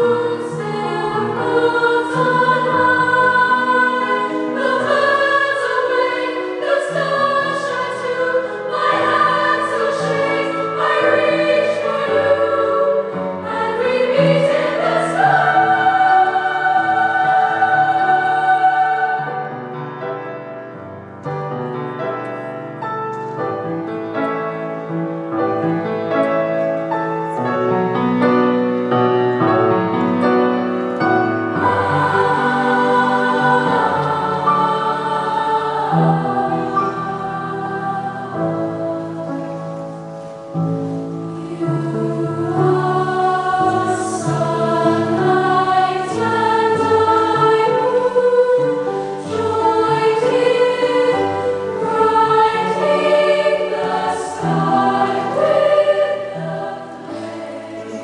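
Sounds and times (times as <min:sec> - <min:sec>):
choir singing: 0:00.0 - 0:21.0, 0:27.4 - 0:58.0
piano: 0:00.0 - 0:58.0.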